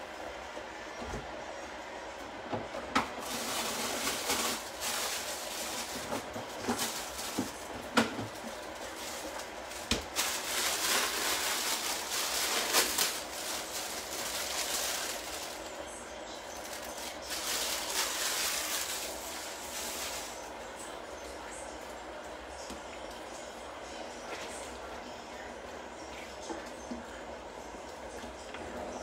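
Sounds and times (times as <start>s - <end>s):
plastic bag crinkling: 3.2s - 20.6s.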